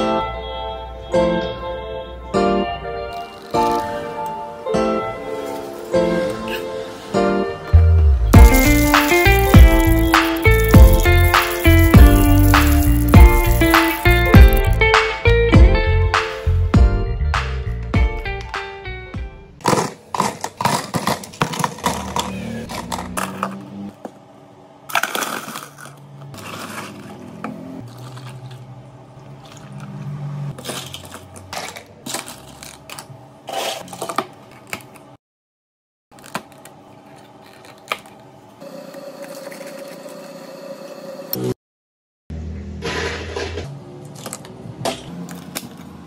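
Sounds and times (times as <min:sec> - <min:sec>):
soft background music: 0:00.0 - 0:19.5
ice cubes clinking into plastic cups: 0:08.4 - 0:14.8, 0:24.9 - 0:27.2, 0:30.6 - 0:33.1.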